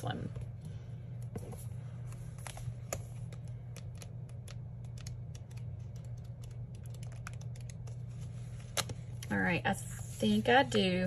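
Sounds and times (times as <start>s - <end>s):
low steady hum: 0.0s - 11.0s
stiff pages clicking and ticking: 2.4s - 8.1s.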